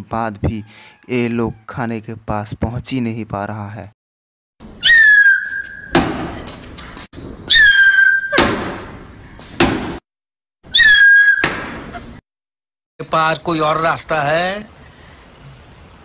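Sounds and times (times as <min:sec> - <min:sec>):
cartoon whistle and thump effect: 0:04.8 - 0:06.1, 0:07.5 - 0:09.1, 0:10.7 - 0:12.1.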